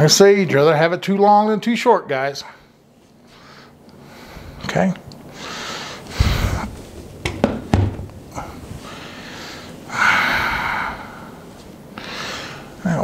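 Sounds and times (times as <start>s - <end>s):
breathy hiss: 2.6s - 4.7s, 5.3s - 7.0s, 8.2s - 13.0s
low thump: 6.2s - 8.1s
sharp knocks: 7.2s - 8.2s.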